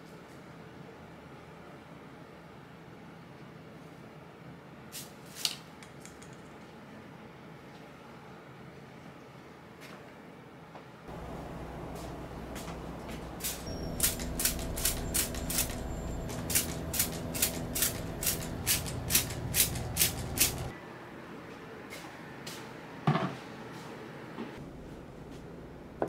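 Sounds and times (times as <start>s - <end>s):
steady hum: 11.1s - 21.2s.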